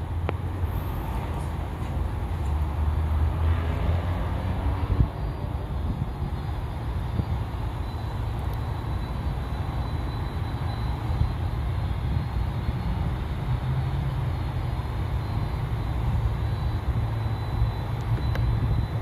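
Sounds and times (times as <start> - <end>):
high engine whine: 0.0 - 19.0
jet airliner engine rumble: 0.0 - 19.0.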